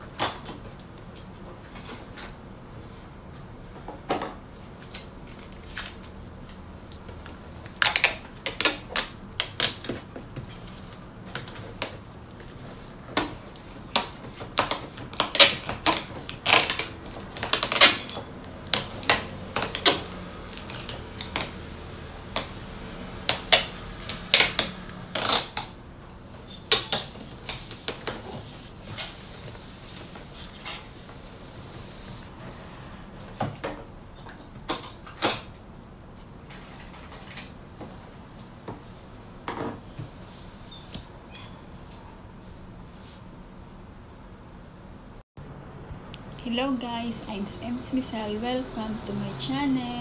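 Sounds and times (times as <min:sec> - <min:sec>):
packing tape ripping: 0:07.7 - 0:12.0, 0:13.2 - 0:21.7, 0:23.2 - 0:25.8, 0:26.6 - 0:28.3.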